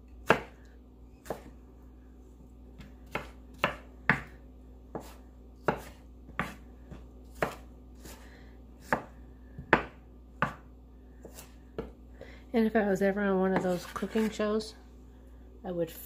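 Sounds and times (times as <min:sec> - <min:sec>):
knife chopping on wooden board: 0:00.2 - 0:00.6, 0:01.2 - 0:01.5, 0:02.8 - 0:08.2, 0:08.8 - 0:12.0.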